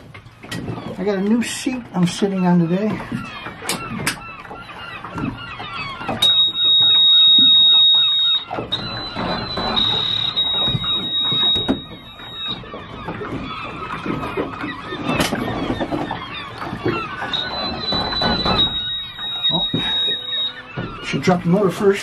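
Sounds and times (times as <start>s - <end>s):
bird calls: 0.0s - 22.0s
steady high-pitched tone: 17.2s - 20.9s.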